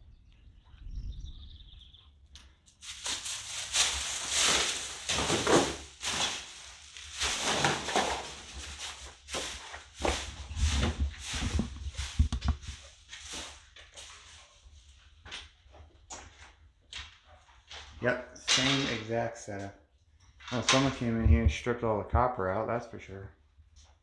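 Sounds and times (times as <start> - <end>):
footsteps on hard floor: 7.2 - 12.9
sharp knocks and clicks: 12.2 - 12.7.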